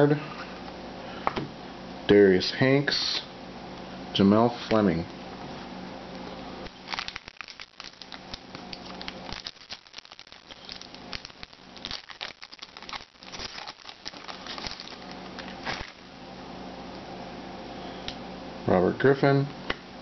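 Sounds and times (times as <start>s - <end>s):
foil wrapper tearing and crinkling: 6.6s - 16.0s.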